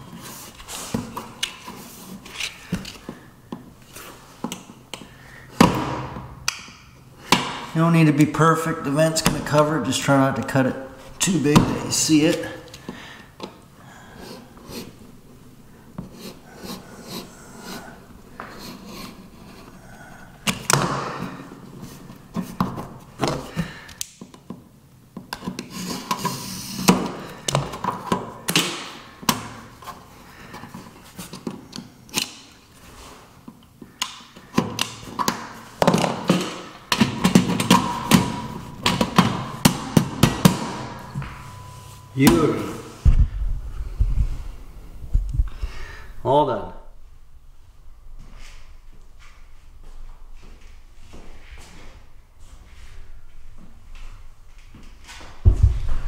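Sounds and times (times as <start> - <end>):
metal vent laid on floor: 34.5 - 43.3.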